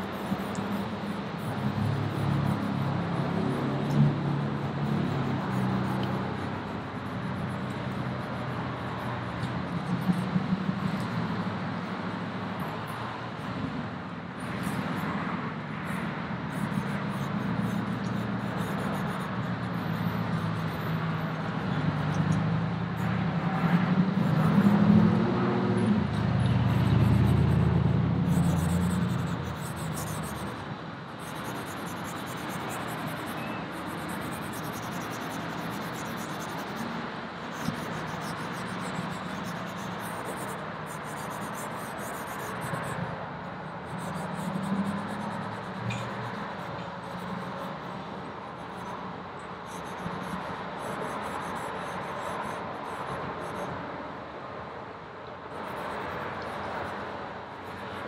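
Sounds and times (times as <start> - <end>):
charcoal scratching on paper: 0.0 - 10.3, 15.8 - 22.4, 23.0 - 30.6, 31.2 - 43.1, 43.7 - 48.9, 49.7 - 53.7
road traffic rumbling: 0.0 - 58.0.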